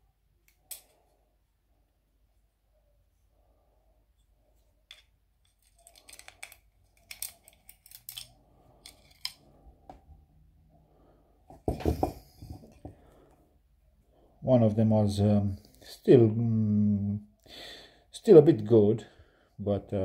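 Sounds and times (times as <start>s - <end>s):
small metal parts clicking: 4.9s - 9.4s.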